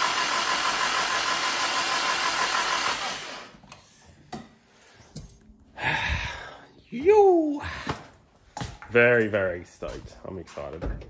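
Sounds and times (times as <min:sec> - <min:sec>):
engine cranking on starter motor: 0:00.0 - 0:03.6.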